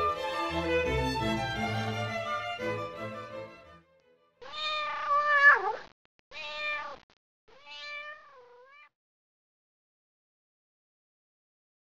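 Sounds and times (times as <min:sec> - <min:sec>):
cat meowing: 0:04.4 - 0:08.9.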